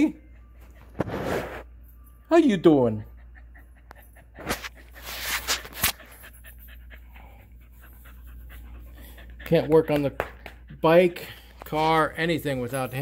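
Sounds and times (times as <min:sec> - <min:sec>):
dog panting: 0:02.7 - 0:12.7.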